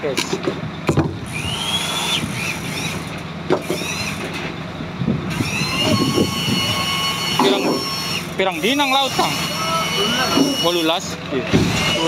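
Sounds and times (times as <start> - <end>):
boat machinery humming: 0.0 - 12.0.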